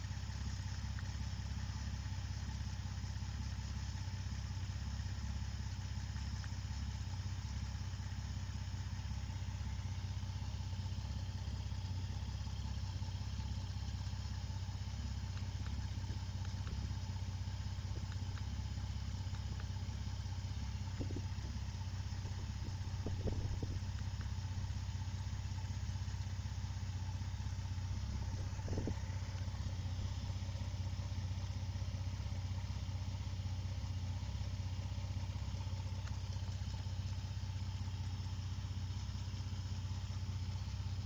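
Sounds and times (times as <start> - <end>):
car engine idling: 0.0 - 41.0
faint ticks: 0.3 - 1.4, 5.7 - 6.9, 14.9 - 24.4, 34.2 - 41.0.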